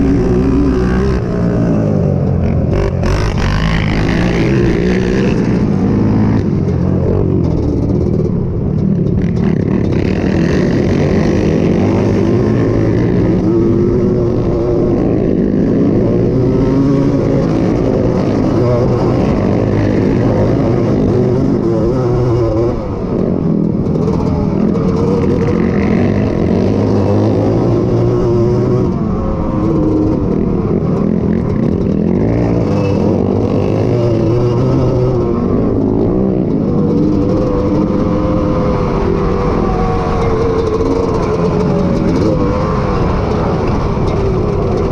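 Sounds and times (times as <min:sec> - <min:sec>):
two-stroke engine revving: 0:00.0 - 0:08.3, 0:09.0 - 0:44.9.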